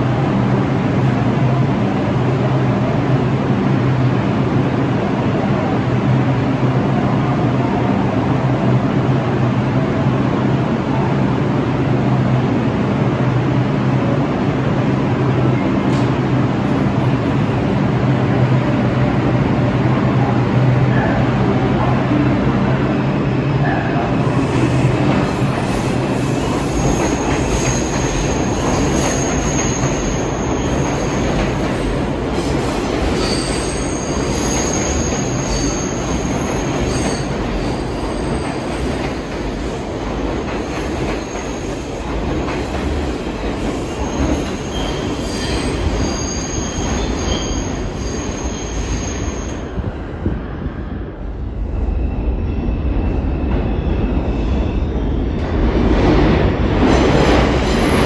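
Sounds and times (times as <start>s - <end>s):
subway train wheels rumbling on rail: 0.0s - 58.0s
high-pitched wheel squeal: 33.2s - 38.5s, 43.9s - 49.6s.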